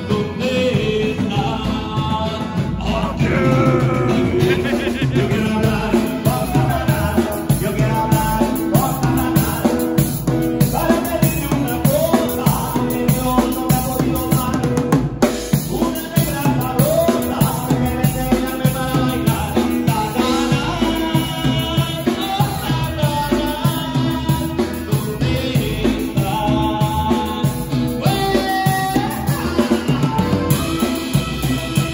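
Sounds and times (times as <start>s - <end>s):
acoustic guitar: 0.0s - 31.9s
drum kit beat: 0.0s - 31.9s
wind instrument melody: 28.0s - 31.9s.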